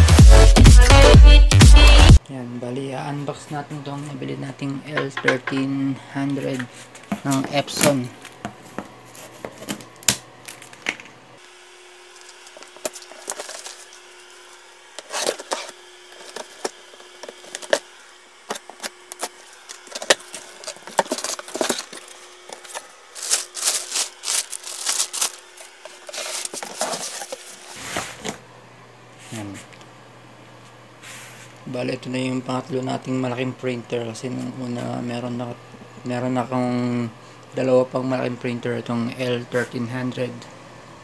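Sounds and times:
plastic wrapping rustling: 0:12.1 - 0:14.1, 0:18.5 - 0:28.4.

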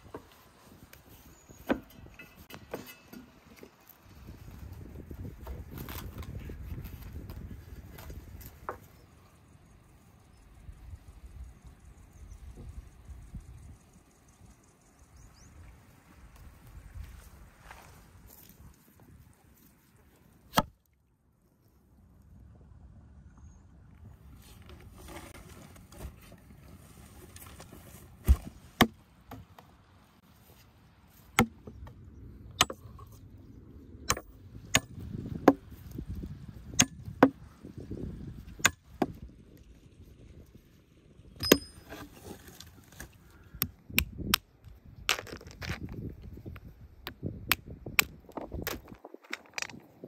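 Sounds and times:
axe chopping firewood: 0:20.5 - 0:20.8, 0:28.2 - 0:29.4, 0:31.4 - 0:31.9, 0:32.6 - 0:33.1, 0:34.1 - 0:35.7, 0:36.7 - 0:37.4, 0:38.6 - 0:39.3, 0:41.4 - 0:42.1.

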